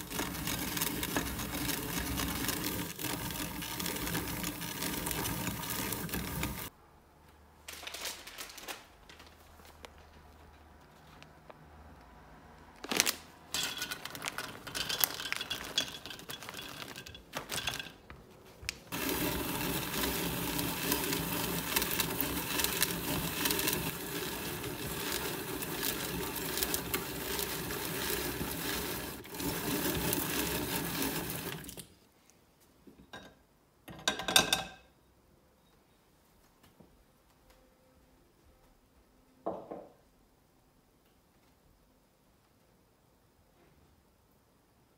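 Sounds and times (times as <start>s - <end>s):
drum grater clattering: 0.0s - 6.7s
drum grater rasping: 0.0s - 6.7s, 18.9s - 31.6s.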